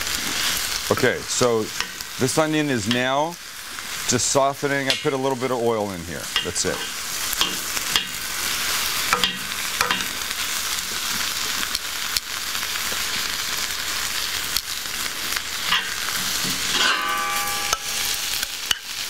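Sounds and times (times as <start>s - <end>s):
onions sizzling in hot oil: 0.0s - 19.0s
metal tongs clicking against pan: 1.8s - 2.0s, 6.3s - 8.2s, 9.1s - 10.1s, 15.6s - 19.0s.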